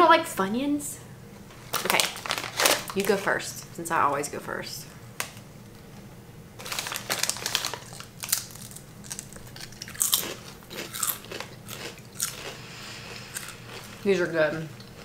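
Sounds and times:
potato chips crunching: 0:01.7 - 0:03.2, 0:06.6 - 0:15.0.

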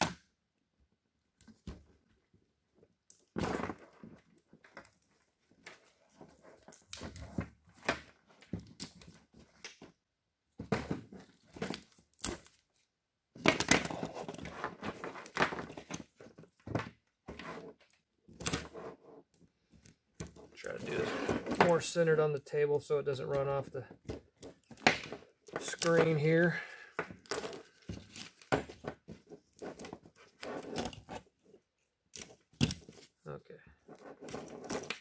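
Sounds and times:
wire bundles rustling and clunking: 0:13.4 - 0:35.0.

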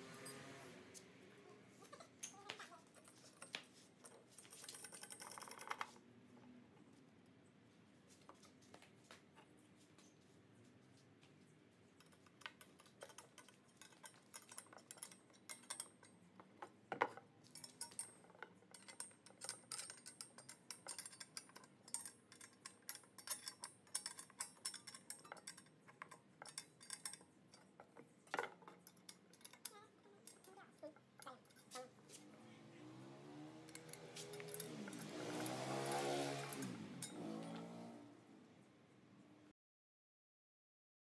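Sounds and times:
metal clicks and clinks: 0:02.0 - 0:06.0, 0:12.0 - 0:32.2, 0:33.0 - 0:37.9.

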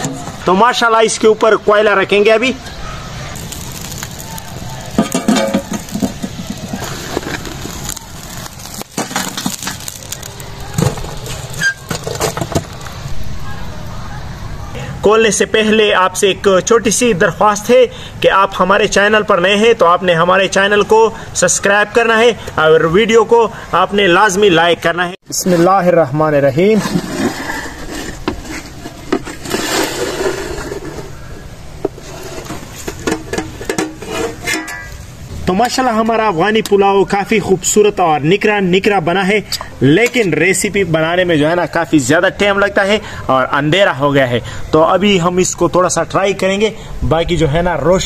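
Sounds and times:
coals clattering on metal lid: 0:03.4 - 0:13.0, 0:26.8 - 0:31.2, 0:31.8 - 0:35.0
metal scraping on pot rim: 0:26.8 - 0:31.2, 0:31.8 - 0:35.0.

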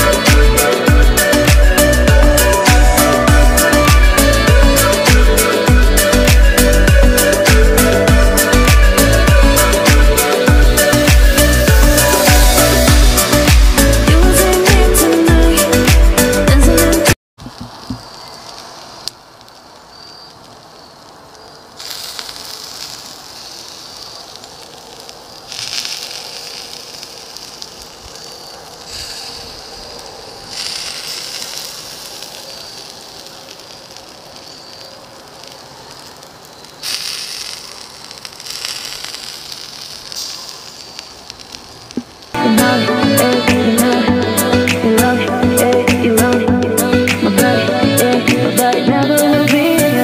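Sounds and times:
burger patties sizzling on grill: 0:02.4 - 0:14.0, 0:17.4 - 0:43.9.

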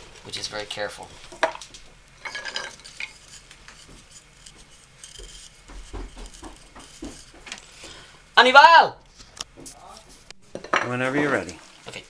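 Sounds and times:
cloth rubbing wax onto wood: 0:02.8 - 0:08.2.

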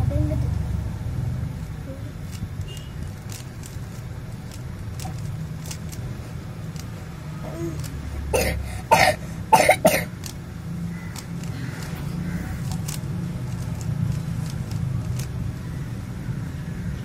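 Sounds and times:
person coughing: 0:08.4 - 0:10.1
puzzle cube clicks: 0:11.1 - 0:15.4.

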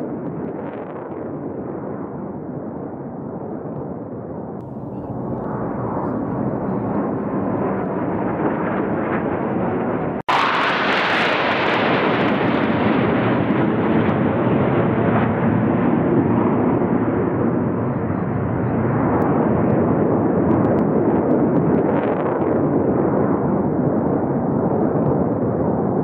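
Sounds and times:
jet aircraft flying past: 0:04.7 - 0:20.4.

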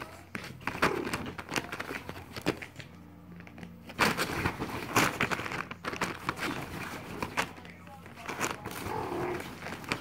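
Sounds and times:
plastic tarp crinkling: 0:03.8 - 0:10.0.

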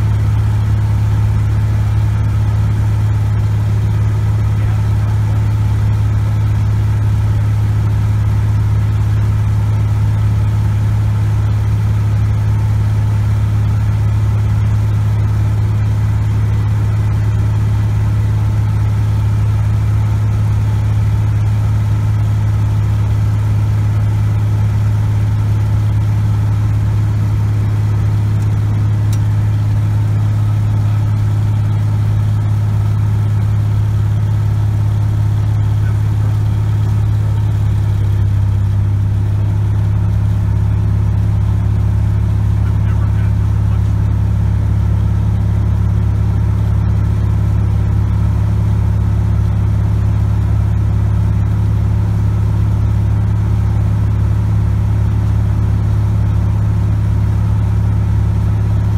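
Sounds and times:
airplane engine drone: 0:00.0 - 0:54.0.

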